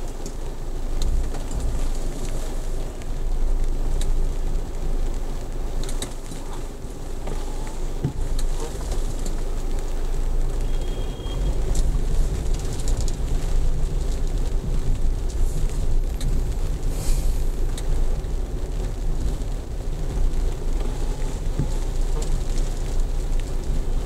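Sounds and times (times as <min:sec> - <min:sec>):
light ticks: 0:00.0 - 0:02.4, 0:03.0 - 0:04.2, 0:05.4 - 0:06.4, 0:07.2 - 0:09.9, 0:11.6 - 0:19.4, 0:20.4 - 0:24.0
car engine and tyres rumbling: 0:00.0 - 0:24.0.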